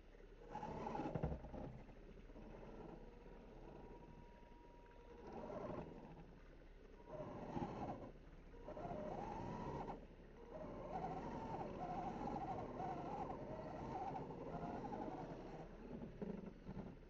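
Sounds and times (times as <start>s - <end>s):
toy car electric motor whining: 8.7s - 16.9s.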